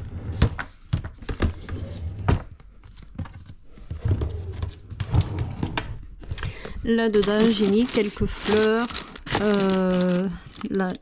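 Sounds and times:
drawer pulled open: 3.9s - 6.0s
drawer sliding shut: 4.0s - 6.0s.

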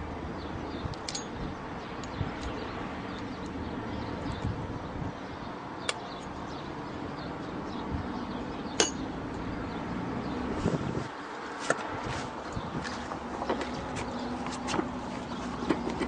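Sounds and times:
steady background noise: 0.0s - 16.0s
small metallic clicks: 0.9s - 3.6s.

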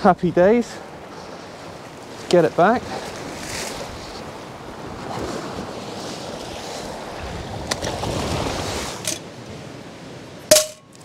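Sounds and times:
waves breaking on rocks: 0.2s - 11.0s
wind buffeting microphone: 2.8s - 11.0s.

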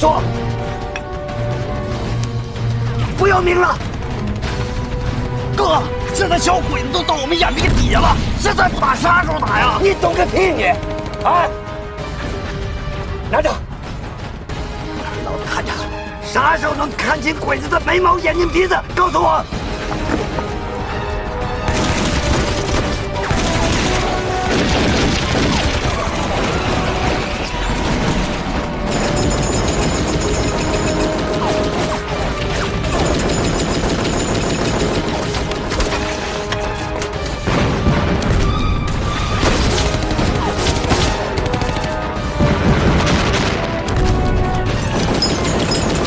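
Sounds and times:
dramatic background music: 0.0s - 46.0s
massed rifle fire: 21.7s - 26.4s, 28.0s - 36.1s, 44.9s - 46.0s
explosions: 21.7s - 28.8s, 37.4s - 41.4s, 42.1s - 46.0s
gunfire volleys: 21.7s - 36.2s.

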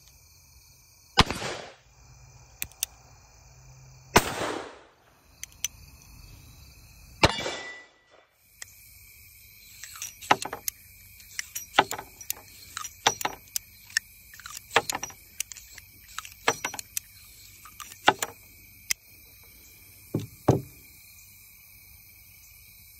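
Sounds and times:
revolver gunshot: 1.2s - 1.8s, 4.2s - 4.9s, 7.2s - 7.9s
metallic clicks of revolver cylinder: 2.6s - 3.0s, 5.3s - 5.8s, 9.5s - 19.1s
brass cases dropping onto wood: 9.8s - 18.4s, 20.2s - 20.8s
revolver knocking on wood: 10.2s - 10.7s, 11.6s - 13.6s, 14.7s - 15.2s, 16.3s - 16.9s, 18.0s - 18.4s, 20.2s - 20.8s.

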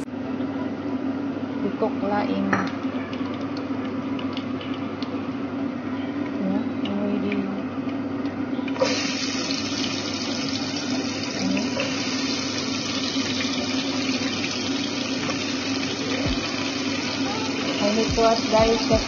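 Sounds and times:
food sizzling in hot oil: 8.8s - 19.0s
steady low hum: 9.5s - 19.0s.

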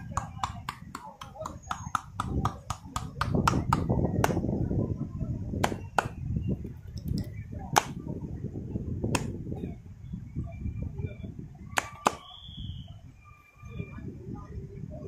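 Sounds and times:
hands slapping bare back: 0.1s - 4.4s, 5.6s - 6.2s, 9.1s - 9.4s, 11.8s - 12.2s.

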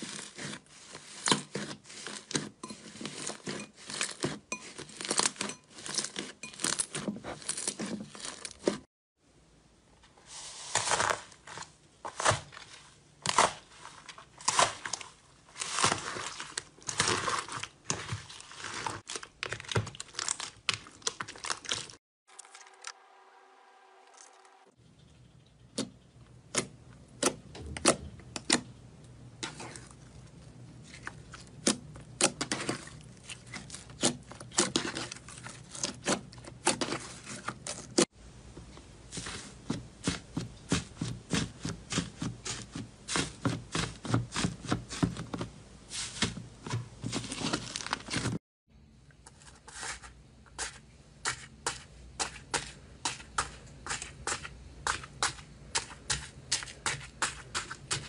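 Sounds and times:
crunchy slime crackling: 12.1s - 22.0s.

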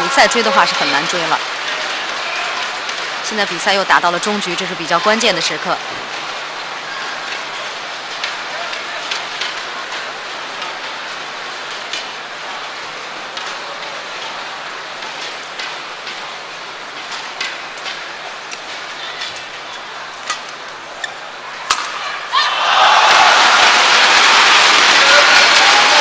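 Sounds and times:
crowd applause and cheering: 0.0s - 3.2s, 22.1s - 26.0s
crowd murmur: 0.0s - 3.6s, 12.3s - 26.0s
racket hitting shuttlecock: 21.6s - 22.0s.

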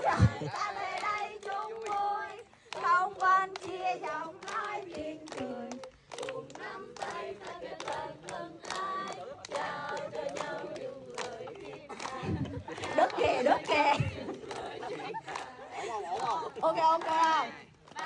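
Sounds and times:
group of people singing: 0.0s - 18.0s
hands clapping in rhythm: 0.0s - 18.0s.

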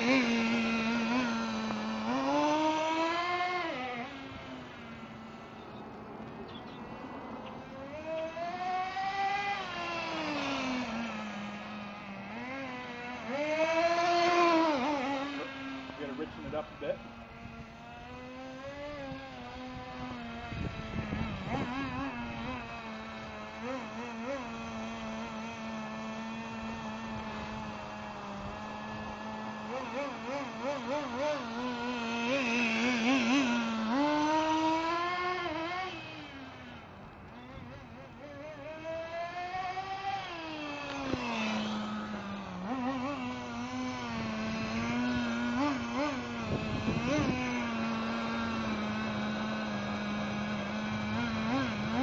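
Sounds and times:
rc car engine buzzing: 0.0s - 52.0s.

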